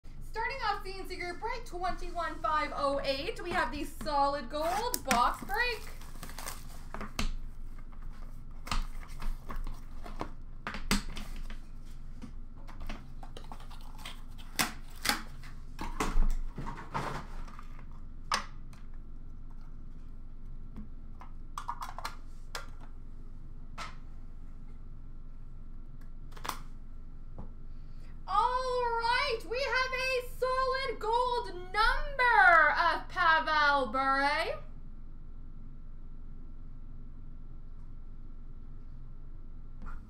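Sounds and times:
cardboard and wrapper rustling: 0:04.6 - 0:10.4, 0:12.8 - 0:15.6.

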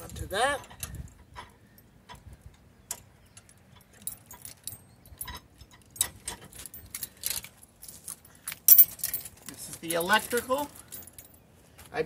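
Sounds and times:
metal cable and hook clinking: 0:02.8 - 0:11.5.

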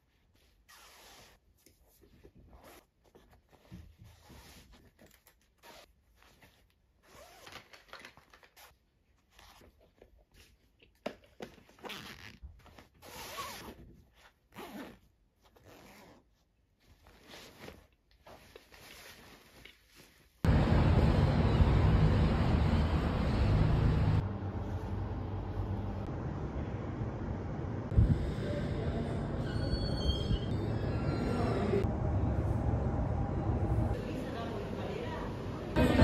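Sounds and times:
backpack zippers zipping: 0:07.0 - 0:07.6, 0:11.8 - 0:13.8, 0:14.5 - 0:16.3
fabric rustling: 0:11.5 - 0:20.5.

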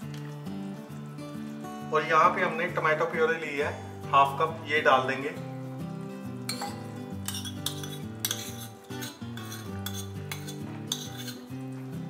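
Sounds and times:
background music: 0:00.0 - 0:12.0
metal spoon scraping ceramic bowl: 0:06.5 - 0:11.7.

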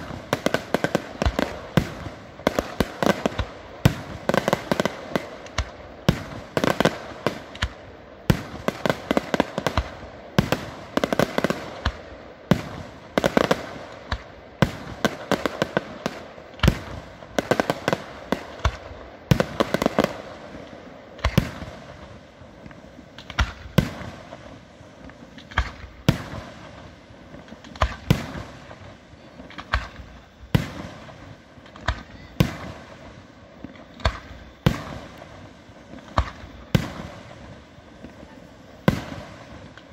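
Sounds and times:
firework crackling: 0:00.0 - 0:39.9.

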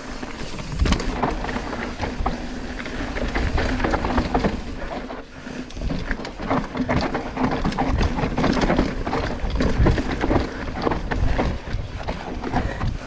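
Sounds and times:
bike rattling and clattering: 0:00.0 - 0:13.0.

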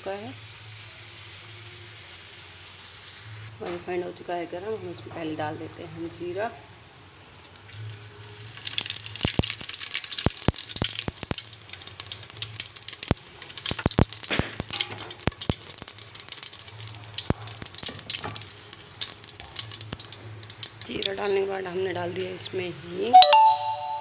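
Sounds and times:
seeds sizzling in hot oil: 0:00.0 - 0:20.9.

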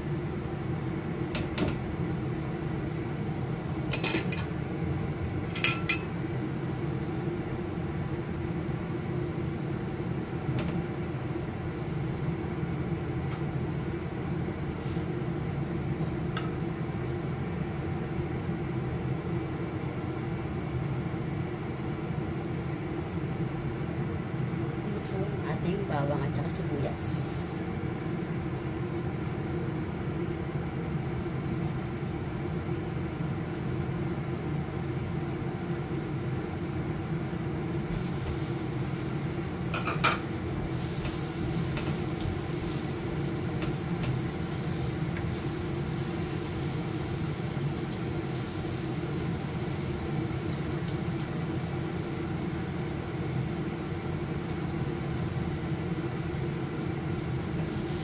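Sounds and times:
range hood fan hum: 0:00.0 - 0:58.0
garlic and onion frying in oil: 0:30.6 - 0:58.0.

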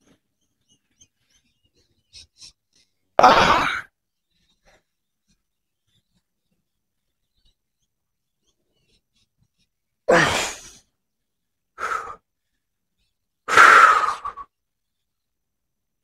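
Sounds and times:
man sighing with effort: 0:10.1 - 0:10.7.

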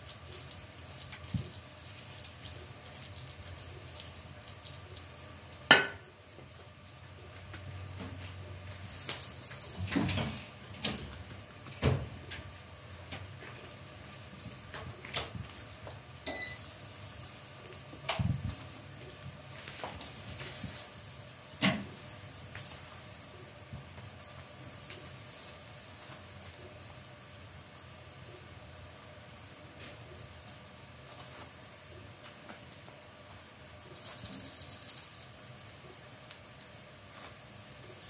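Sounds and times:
low steady hum: 0:00.0 - 0:19.6.

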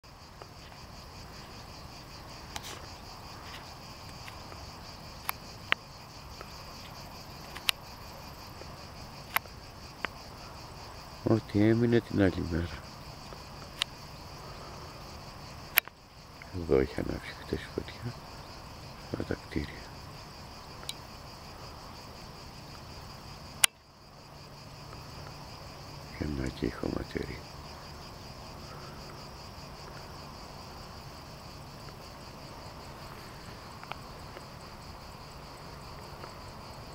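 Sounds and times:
insects chirring: 0:00.0 - 0:36.9.

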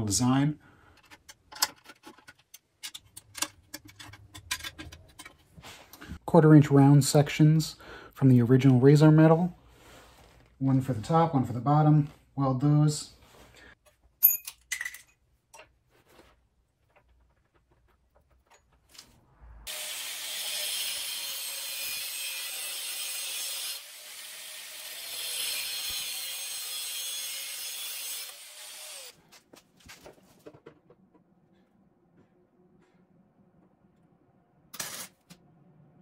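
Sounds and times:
angle grinder grinding metal: 0:19.7 - 0:29.2.

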